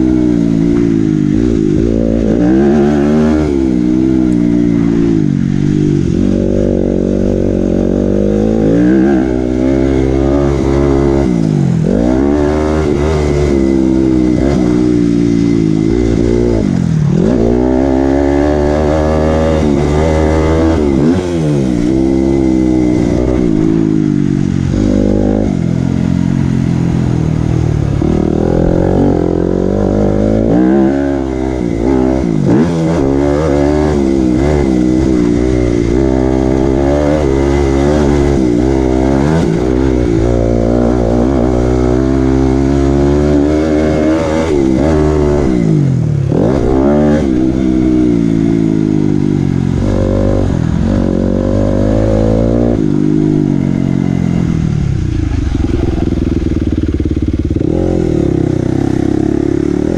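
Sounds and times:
dirt bike engine revving: 0.0 - 59.9.

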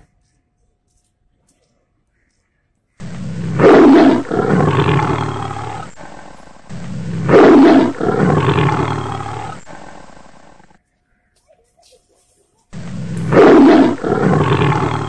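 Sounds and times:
tiger roaring and growling: 3.0 - 10.8, 12.7 - 15.0.

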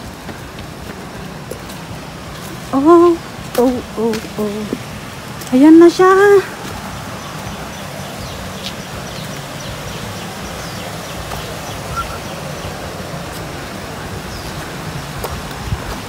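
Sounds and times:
footsteps on dirt and rock: 0.0 - 16.0
wind rumble on microphone: 0.0 - 16.0
faint bird chirps: 7.2 - 12.8.

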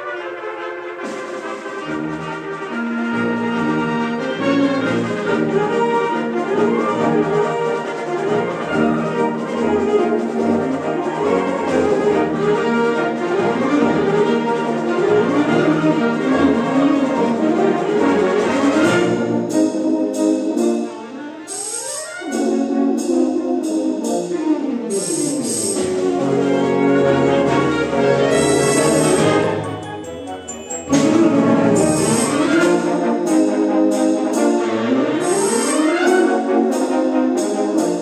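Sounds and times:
concert wind band playing: 0.0 - 38.0
sharp percussion strikes: 27.4 - 34.5.

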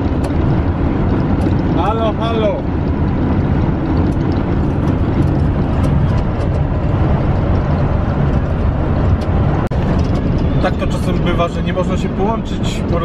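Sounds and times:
vehicle cabin road rumble: 0.0 - 13.0.

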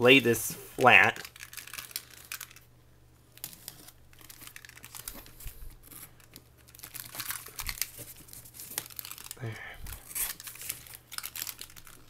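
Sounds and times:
tape tearing: 3.4 - 9.4, 10.0 - 12.0.

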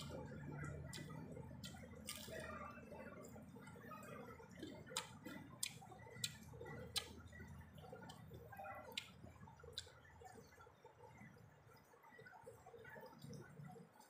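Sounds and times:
wet chewing and lip smacks: 0.0 - 13.8
mouth clicks: 4.6 - 10.1.

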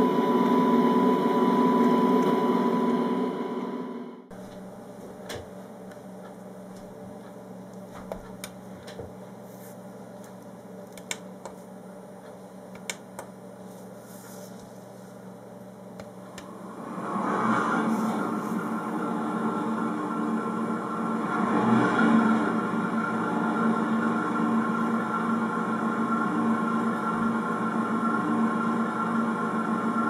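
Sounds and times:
simulated diesel locomotive engine: 0.0 - 4.3, 16.4 - 30.0
low hum: 0.0 - 29.4.

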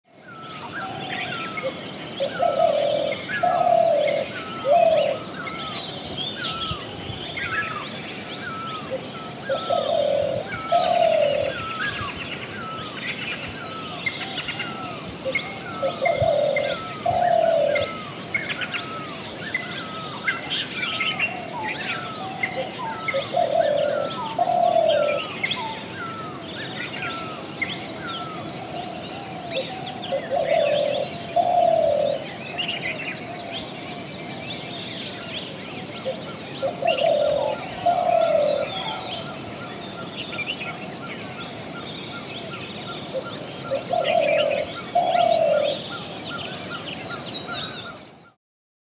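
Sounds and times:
bird two-note cooing: 14.8 - 18.2, 21.9 - 26.3, 36.6 - 39.2, 43.2 - 45.9.

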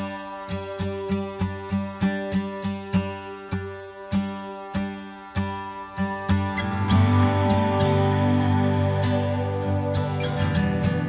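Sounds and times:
plucked string notes: 0.0 - 11.0
sustained tones: 6.6 - 11.0.

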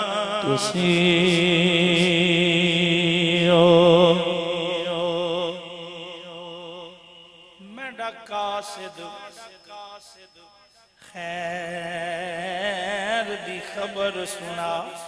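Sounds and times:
man singing a long note: 0.0 - 10.0.

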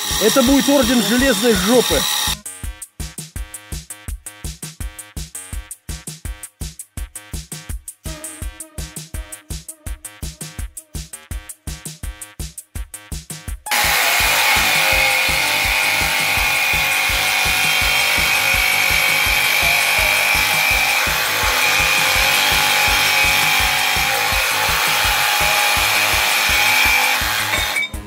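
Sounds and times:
jigsaw cutting through steel: 0.0 - 2.4, 13.7 - 28.0.

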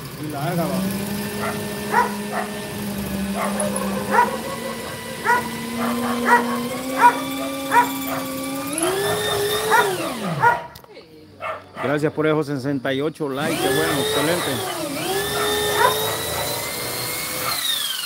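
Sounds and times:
droning tone rising in pitch: 0.0 - 10.4
dog barking: 1.2 - 10.8, 11.4 - 12.0, 13.8 - 16.8, 17.4 - 17.6.

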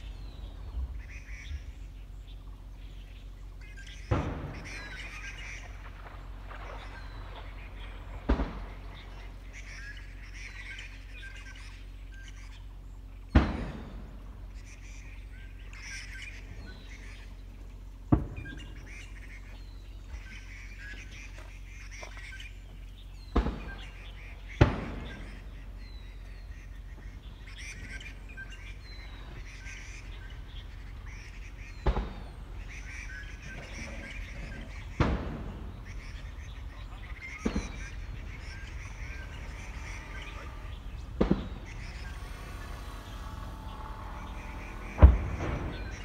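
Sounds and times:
low steady background noise: 0.0 - 46.0
small birds chirping: 0.0 - 46.0
sharp thumps: 4.0 - 9.3, 13.3 - 14.4, 23.2 - 25.6, 31.6 - 46.0.

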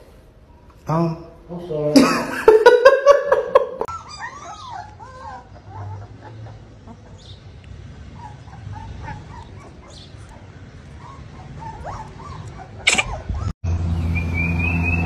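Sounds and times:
puppy whimpering: 3.8 - 7.4, 8.1 - 13.6.

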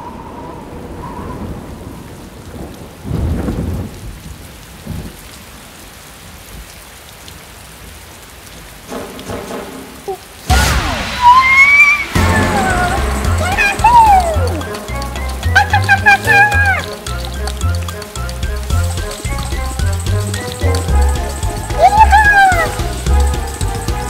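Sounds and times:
thunder rumbling: 0.0 - 5.2, 8.8 - 24.0
steady rain: 0.0 - 24.0
loud crash of thunder: 0.9 - 5.1, 10.5 - 14.6.

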